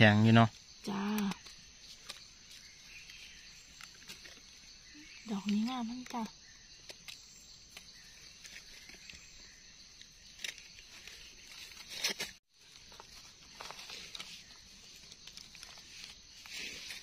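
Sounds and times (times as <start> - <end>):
hands rustling dry leaves: 10.3 - 17.0.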